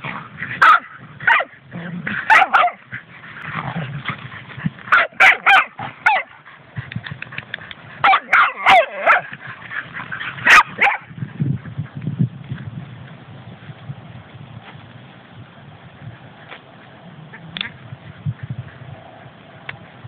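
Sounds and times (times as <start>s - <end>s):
dogs barking and yipping: 0.0s - 12.0s.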